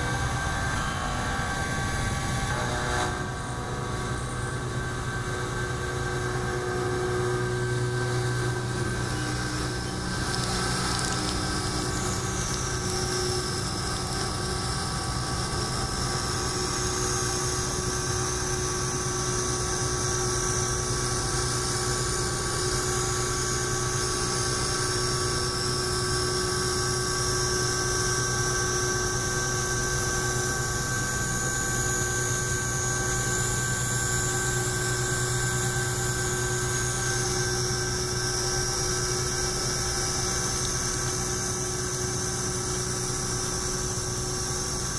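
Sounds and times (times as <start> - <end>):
metal cutting whine and hiss: 0.0 - 44.9
spindle hum: 0.0 - 44.9.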